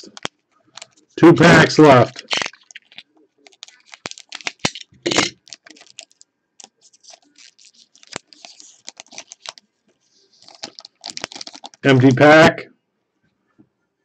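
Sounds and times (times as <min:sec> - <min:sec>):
foil pack crinkling and tearing: 0:00.0 - 0:01.0, 0:02.0 - 0:09.6, 0:10.3 - 0:11.9.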